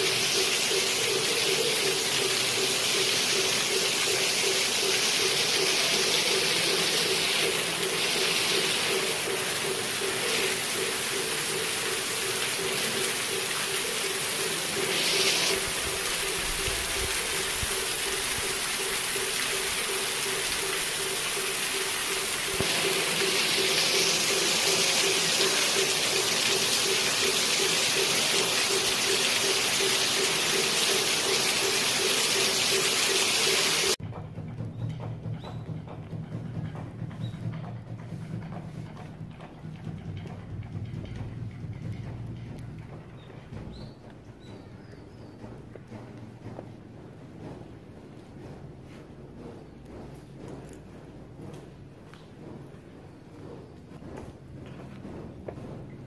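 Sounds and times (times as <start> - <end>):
heavy rain streaming off roof: 0.0 - 34.0.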